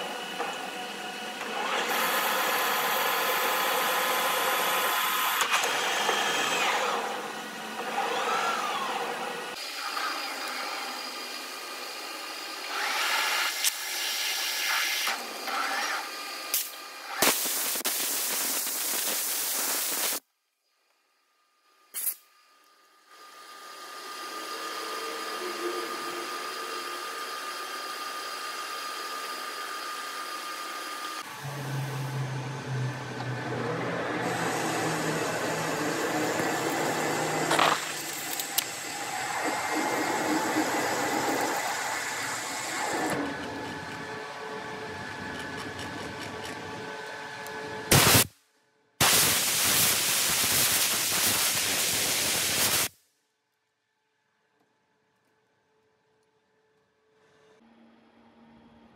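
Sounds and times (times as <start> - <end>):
wavering machine whines: 0.0 - 17.2, 22.8 - 47.9
metal lathe humming: 23.2 - 47.8.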